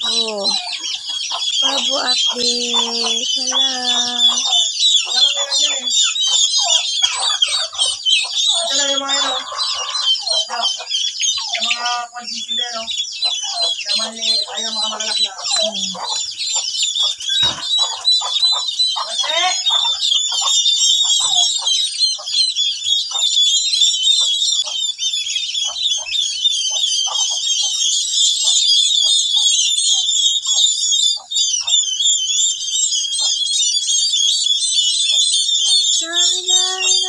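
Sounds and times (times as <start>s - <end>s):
low clucking calls: 0.0s - 10.9s, 13.4s - 23.4s, 35.8s - 37.0s
turkey poults peeping: 0.0s - 37.0s.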